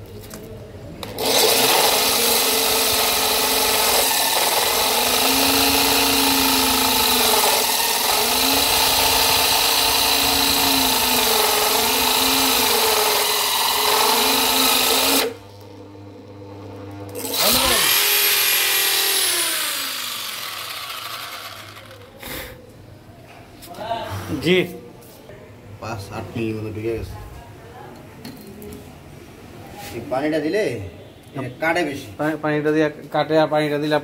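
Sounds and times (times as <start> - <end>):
electric drill grinding stone: 1.1 - 15.4, 17.2 - 22.1.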